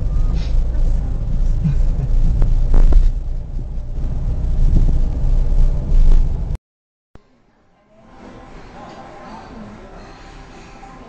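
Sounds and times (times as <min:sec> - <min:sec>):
car cabin road drone: 0:00.0 - 0:06.6.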